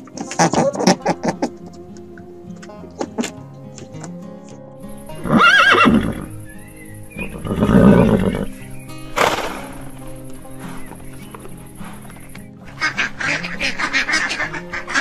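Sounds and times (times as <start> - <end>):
background music: 0.0 - 15.0
horse whinnying: 5.2 - 6.3, 7.2 - 8.6.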